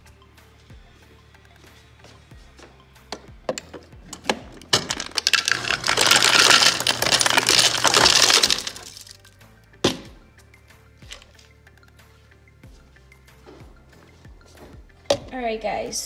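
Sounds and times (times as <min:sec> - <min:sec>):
ice cubes clattering into cup: 0:04.1 - 0:09.3.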